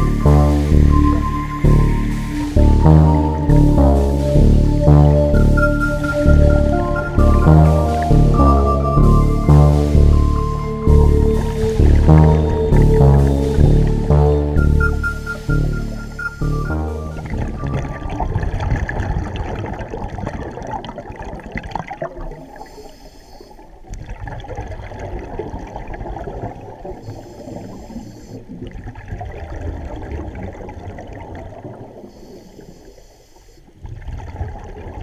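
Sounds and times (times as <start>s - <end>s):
regulator bubbling underwater: 0.0s - 33.0s, 33.7s - 35.0s
hissing breath: 22.6s - 23.8s, 27.0s - 28.6s, 32.0s - 33.8s.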